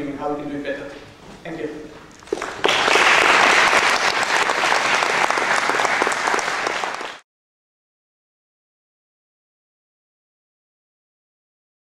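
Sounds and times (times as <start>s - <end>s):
audience applauding: 2.2s - 7.2s.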